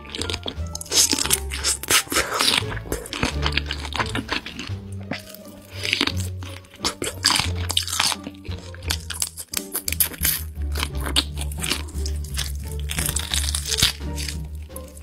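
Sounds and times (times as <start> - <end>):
background music with bass line: 0.0 - 15.0
crunchy chewing of prawns: 0.0 - 15.0.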